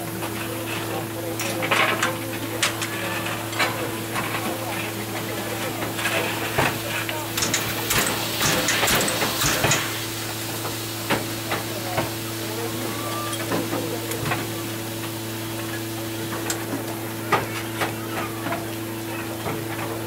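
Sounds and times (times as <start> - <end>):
crowd murmuring: 0.0 - 20.0.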